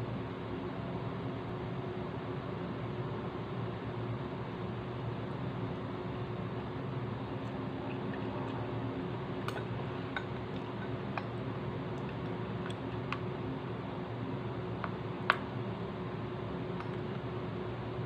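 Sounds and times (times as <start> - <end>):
chewing food: 7.4 - 13.4.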